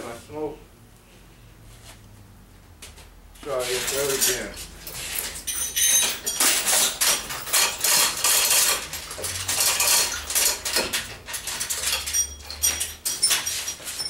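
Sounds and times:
metal parts clinking and rattling: 3.6 - 14.0.

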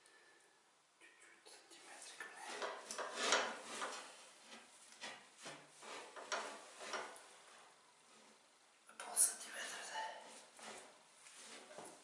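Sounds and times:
tile cutter scraping along tile: 2.5 - 7.3, 10.2 - 12.0.

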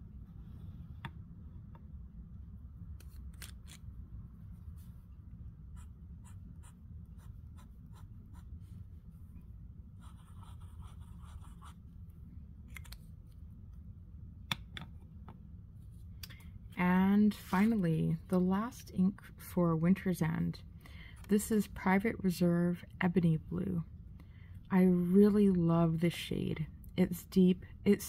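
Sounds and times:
steady low hum: 0.0 - 28.0
pen nib scratching on paper: 5.7 - 8.5, 10.0 - 11.8.

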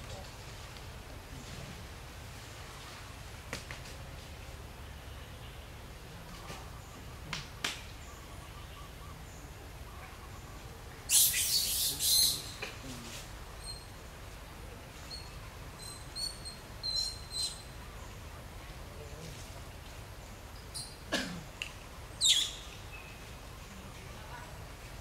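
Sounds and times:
low outdoor rumble: 0.0 - 11.2
animal chirping and chittering: 11.1 - 12.6, 22.2 - 22.8.

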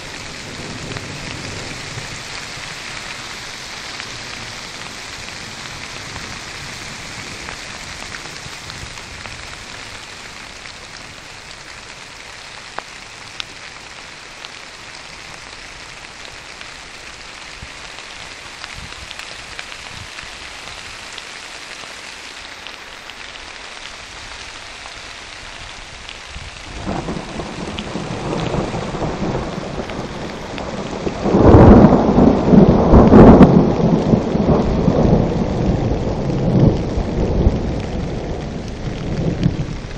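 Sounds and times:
rain hissing: 0.0 - 39.9
thunder rolling: 26.6 - 39.9.

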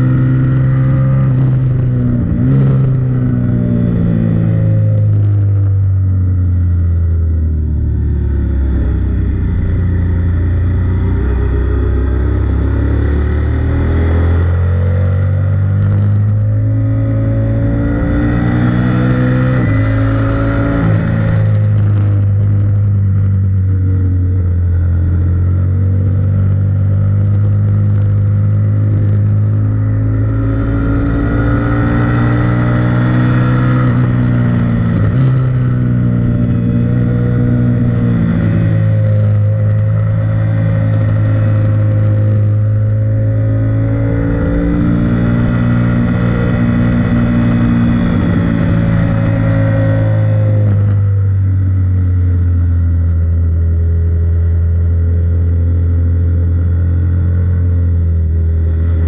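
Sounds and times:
motorbike engine revving: 7.1 - 51.2.

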